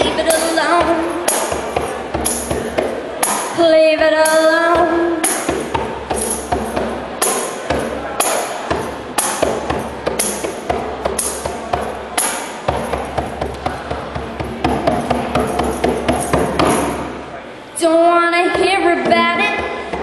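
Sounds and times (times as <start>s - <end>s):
djembe drum strokes: 0.0s - 17.4s
tambourine jingles: 0.1s - 3.6s, 5.2s - 17.2s.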